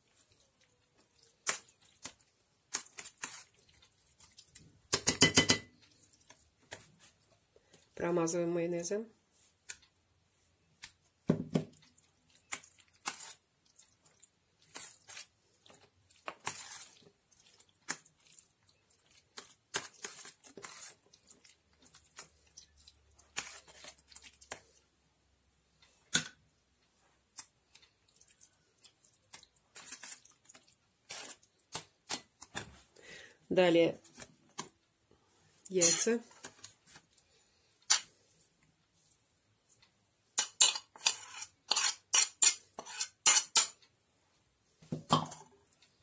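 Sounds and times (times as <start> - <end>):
spoon scraping wet mayonnaise: 0.0 - 4.7, 11.8 - 24.8, 27.4 - 32.6, 35.7 - 37.1, 40.4 - 43.8.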